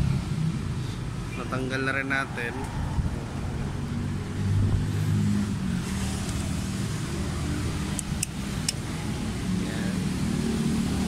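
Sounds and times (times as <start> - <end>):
sharp clicks: 7.9 - 8.8.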